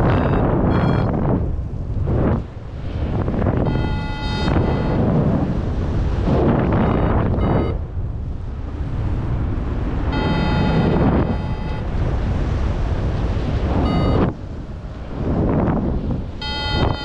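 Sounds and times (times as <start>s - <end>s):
variometer electronic tone: 0.0s - 1.4s, 3.6s - 5.1s, 6.7s - 7.8s, 10.1s - 11.9s, 13.8s - 14.4s, 16.4s - 17.0s
wind rushing over microphone: 0.0s - 17.0s.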